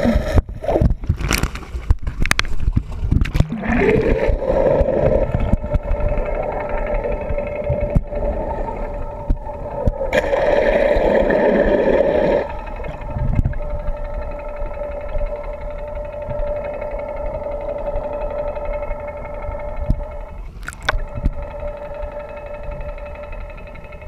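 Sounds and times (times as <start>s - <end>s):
water rushing and bubbling: 0.0s - 23.1s
boat engine hum: 1.7s - 24.0s.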